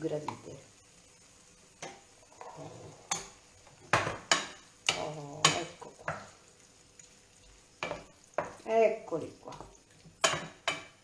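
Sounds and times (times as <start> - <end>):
spoon scraping frying pan: 1.7 - 8.7, 9.5 - 11.0.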